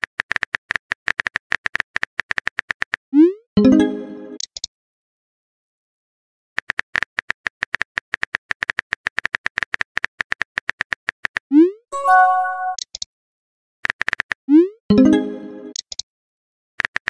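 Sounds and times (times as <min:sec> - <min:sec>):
brief chiming tone: 0:12.0 - 0:12.8.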